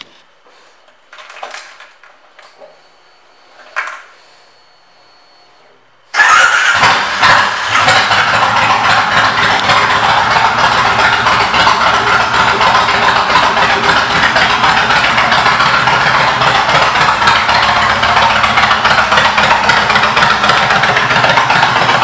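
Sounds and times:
motorcycle engine starting and running: 6.1s - 22.0s.

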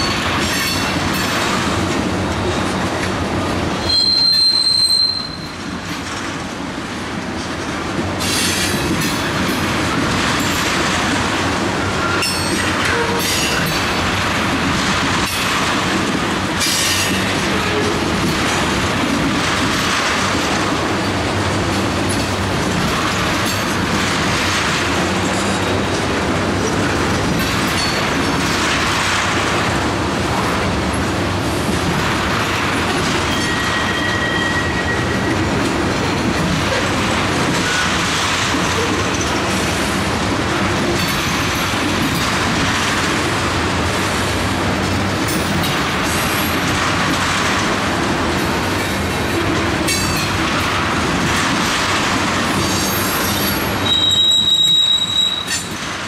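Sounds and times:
train wheels rumbling over rails: 0.0s - 56.0s
high wheel squeal: 3.8s - 5.6s, 33.3s - 35.3s, 52.6s - 55.7s.

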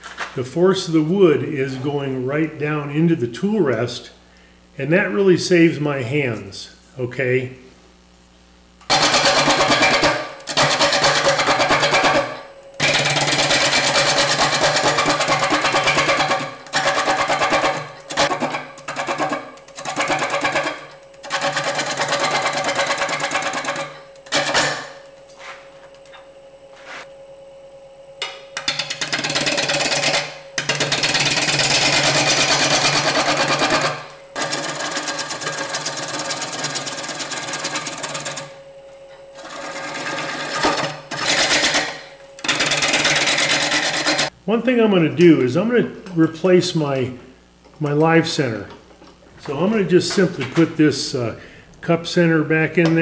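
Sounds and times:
faint whine: 0.0s - 8.9s, 9.8s - 34.5s, 35.4s - 53.0s
gouge scraping wood on lathe: 8.9s - 23.8s, 30.9s - 38.4s, 39.4s - 44.3s
lathe running hum: 8.9s - 44.3s.

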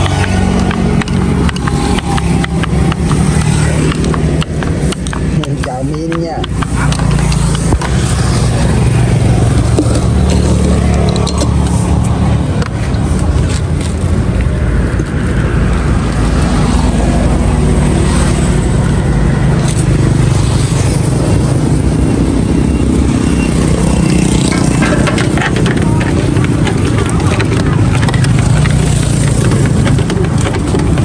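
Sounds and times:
utensils clinking: 0.0s - 13.8s, 23.2s - 31.0s
motorbikes passing by: 0.0s - 31.0s.

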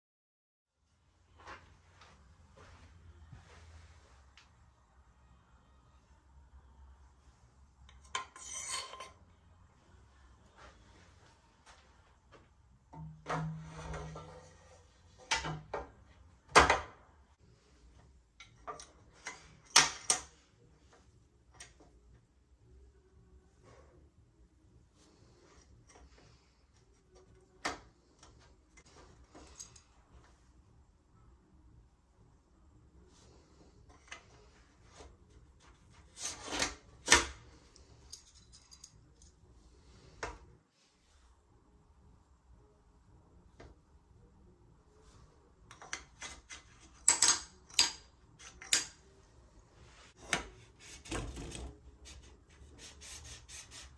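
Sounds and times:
metal part scraping slide: 8.0s - 9.2s
metal parts clicking and knocking: 45.7s - 49.0s.

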